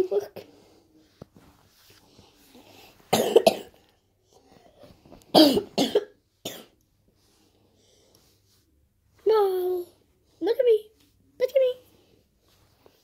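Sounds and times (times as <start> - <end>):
child coughing: 3.1 - 3.8, 5.3 - 6.8.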